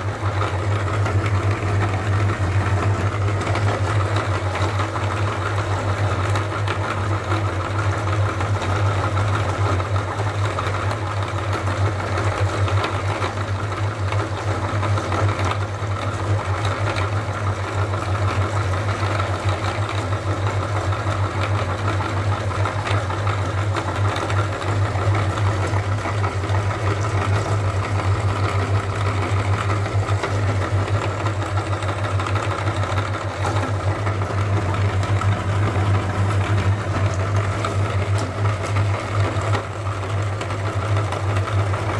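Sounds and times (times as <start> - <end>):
meat grinder humming: 0.0 - 41.9.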